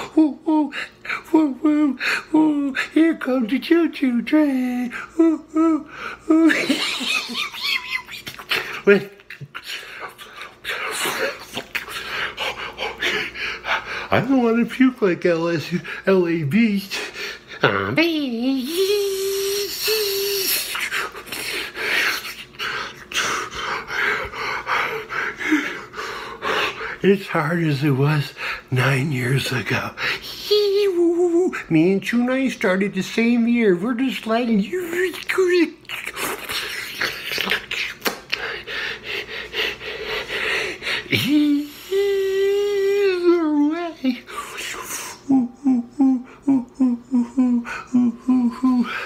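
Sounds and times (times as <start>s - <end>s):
man panting heavily: 11.9s - 14.2s, 21.3s - 27.0s, 38.4s - 42.0s
high-pitched vocal cry: 17.6s - 21.2s, 41.1s - 49.0s
man breathing hard: 38.4s - 42.0s.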